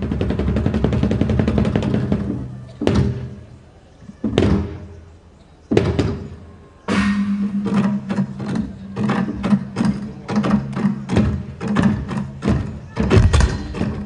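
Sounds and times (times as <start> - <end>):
fast drum roll: 0.0 - 3.2
heavy drum strikes: 5.7 - 14.0.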